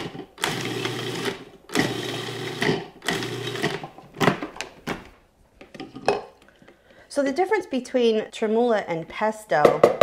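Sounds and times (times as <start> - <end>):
food processor motor chopping: 0.0 - 3.9.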